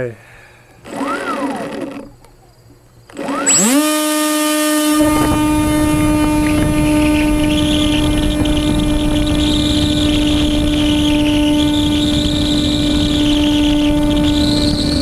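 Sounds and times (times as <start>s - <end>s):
electric motor propeller whine: 0.8s - 2.3s, 3.0s - 15.0s
wind rushing over microphone: 4.8s - 15.0s.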